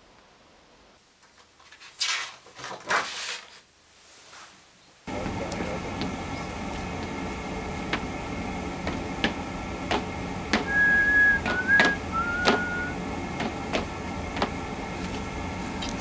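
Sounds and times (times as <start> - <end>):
steady low hum: 5.1 - 16.0
short whistled notes: 10.6 - 13.0.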